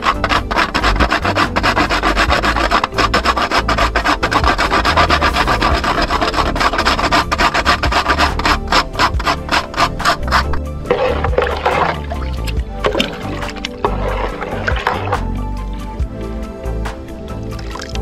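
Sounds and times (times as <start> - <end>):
spice grating on metal grater: 0.0 - 12.0.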